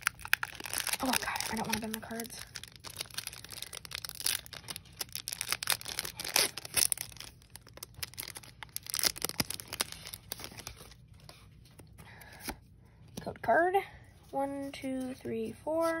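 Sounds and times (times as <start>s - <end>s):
foil wrapper crinkling and tearing: 0.0s - 11.2s.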